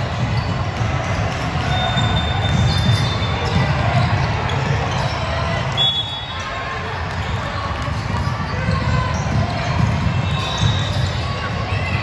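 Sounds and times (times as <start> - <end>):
gym crowd noise: 0.0 - 12.0.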